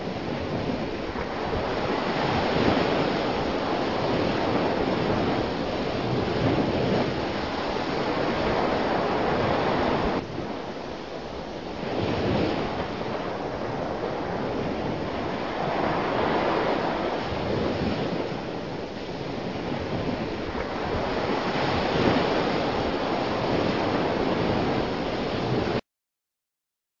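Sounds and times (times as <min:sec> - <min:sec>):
ocean waves breaking: 0:00.0 - 0:25.8.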